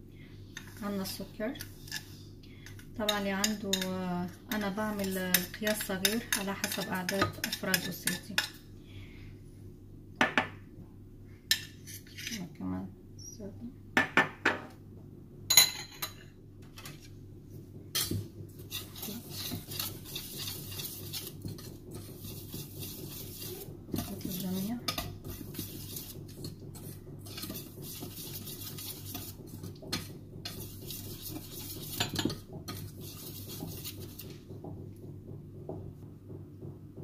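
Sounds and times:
whisk scraping in metal bowl: 0.6s - 2.2s, 3.0s - 8.6s, 18.0s - 34.6s.

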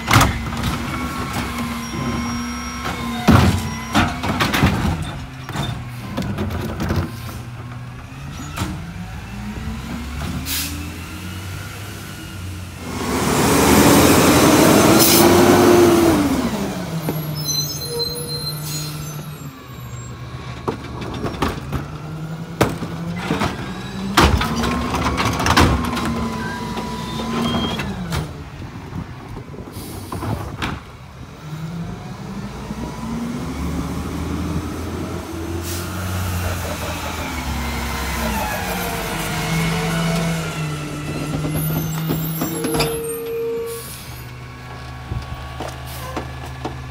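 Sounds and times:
trash carts banging: 0.0s - 10.5s, 20.1s - 31.2s, 34.8s - 46.9s
truck engine revving: 7.4s - 17.6s, 31.3s - 42.7s
air brake hiss: 10.5s - 10.8s.

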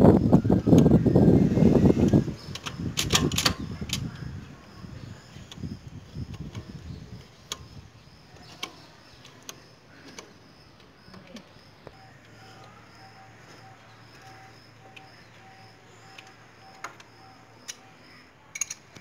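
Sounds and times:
socket wrench clicking: 2.0s - 4.2s, 5.5s - 11.3s, 18.5s - 19.0s.

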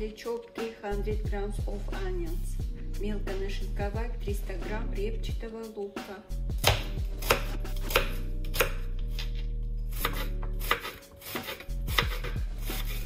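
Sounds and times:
knife chopping onion on board: 6.6s - 13.0s.

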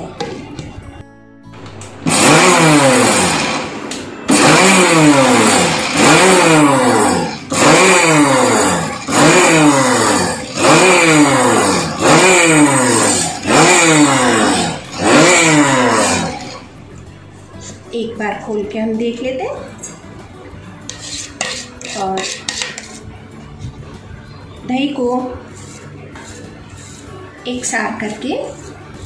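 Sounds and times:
mixer grinder motor pulses: 2.0s - 16.7s.

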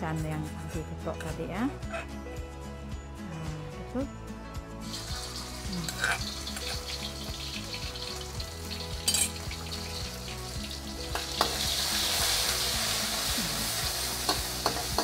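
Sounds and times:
paste sizzling in hot oil: 4.8s - 15.0s
spatula scraping wok: 4.9s - 7.5s.

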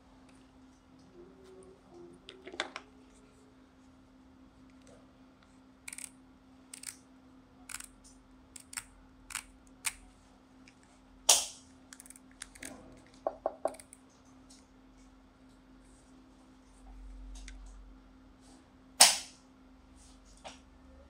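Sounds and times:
sharp plastic snap: 19.0s - 19.4s.

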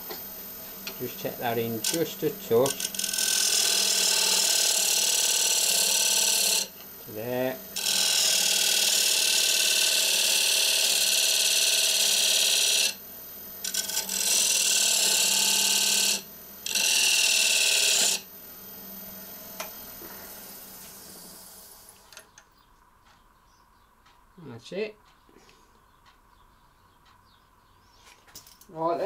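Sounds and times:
lathe running: 0.8s - 13.0s, 13.6s - 18.3s
lathe tool scraping wood: 1.1s - 6.7s, 7.8s - 13.0s, 13.6s - 18.2s.

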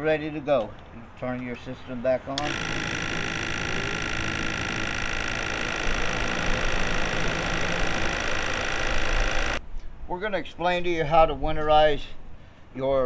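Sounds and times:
misting pump whining: 2.4s - 9.6s.

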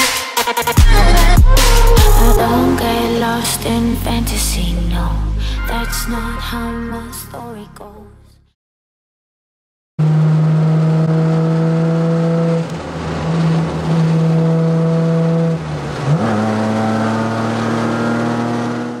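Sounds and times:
car engine revving: 10.0s - 19.0s.

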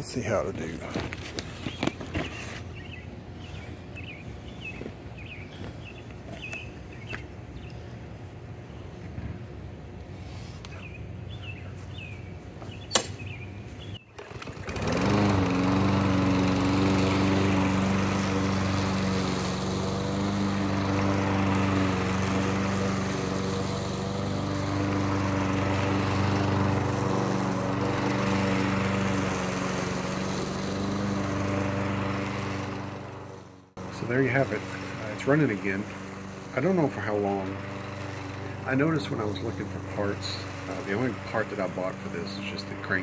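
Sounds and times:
lawn mower engine starting: 12.9s - 43.0s.

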